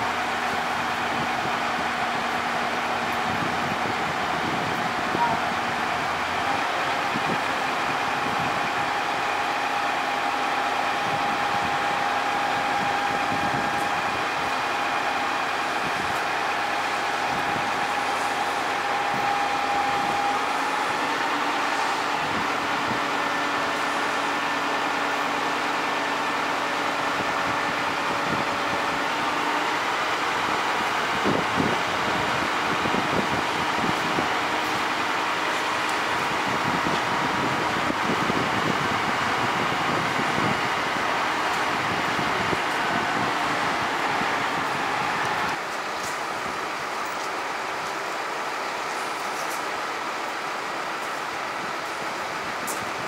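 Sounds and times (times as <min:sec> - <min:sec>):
engine and hydraulic hum: 0:00.0 - 0:53.0
thin steady whine: 0:00.0 - 0:53.0.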